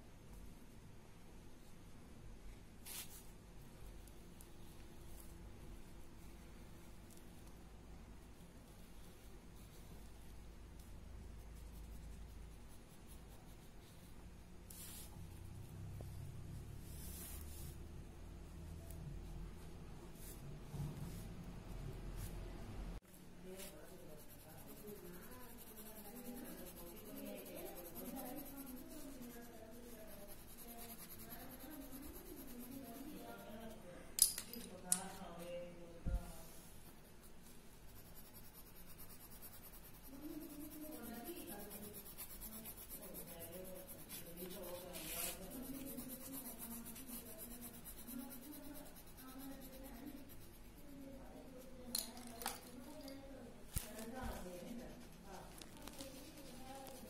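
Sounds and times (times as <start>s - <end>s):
pencil scratching on paper: 8.7s - 17.8s, 23.4s - 33.8s, 36.3s - 51.8s, 53.8s - 57.0s.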